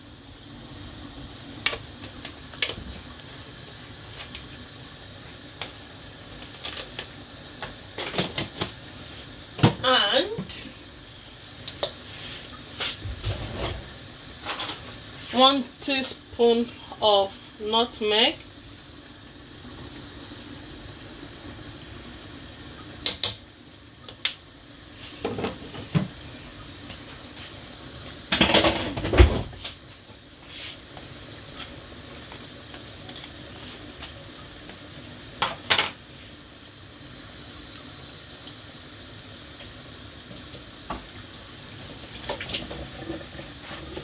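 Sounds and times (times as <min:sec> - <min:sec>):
low hiss of pots cooking: 0:00.0 - 0:44.0
pots and utensils clinking: 0:28.3 - 0:29.0.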